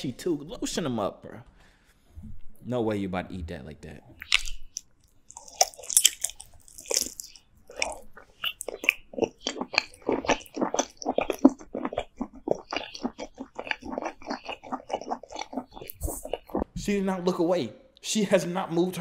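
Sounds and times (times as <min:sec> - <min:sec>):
chewing mouth sounds: 0:00.4 - 0:00.8, 0:04.1 - 0:16.7
woman biting into food: 0:04.2 - 0:16.5.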